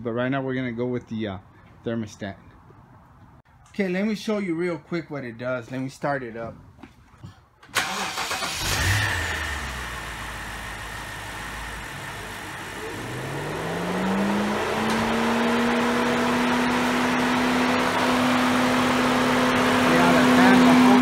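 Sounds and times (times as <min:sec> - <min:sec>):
car engine idling: 0:07.8 - 0:21.0.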